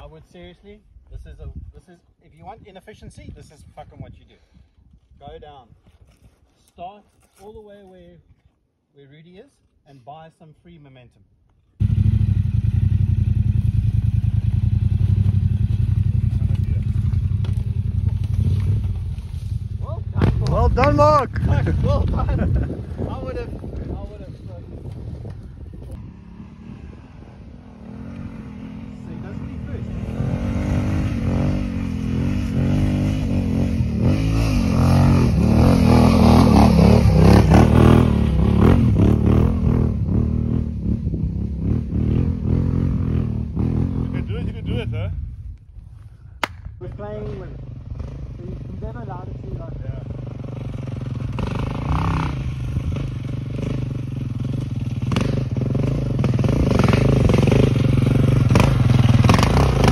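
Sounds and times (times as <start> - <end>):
motorcycle engine at low revs: 11.8 - 45.3, 47.2 - 59.9.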